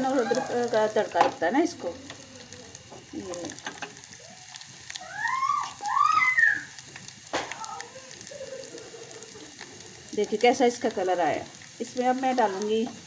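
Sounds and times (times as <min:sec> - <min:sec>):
garlic sizzling in hot oil: 0:00.0 - 0:13.0
high-pitched rising falling calls: 0:05.0 - 0:06.7.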